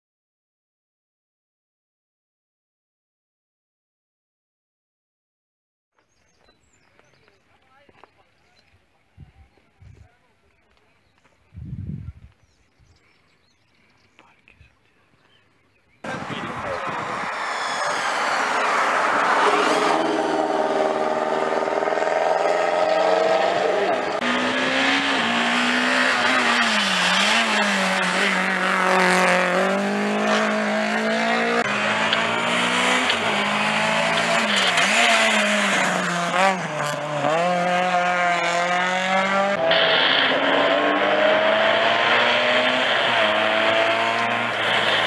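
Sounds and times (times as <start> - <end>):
racing car engines revving: 16.0 - 45.0.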